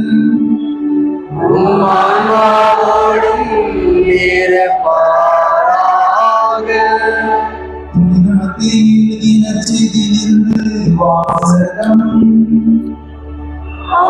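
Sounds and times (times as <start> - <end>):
church choir singing: 1.3 - 8.2, 13.7 - 14.0.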